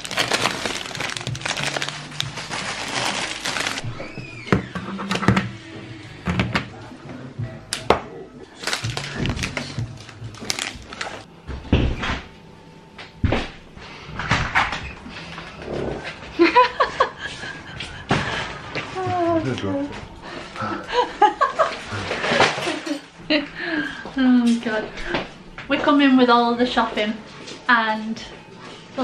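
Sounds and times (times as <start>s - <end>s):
plastic bags rustling: 0.0s - 4.0s, 8.5s - 11.3s.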